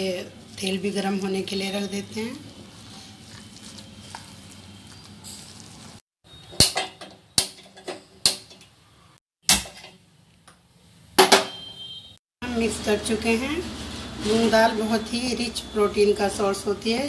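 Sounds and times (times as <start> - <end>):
batter stirring in a bowl: 2.4 - 6.0.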